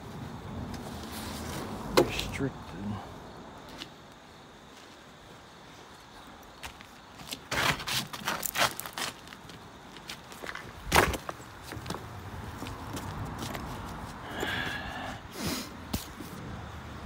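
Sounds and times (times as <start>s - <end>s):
footsteps on loose rocks: 6.6s - 14.2s.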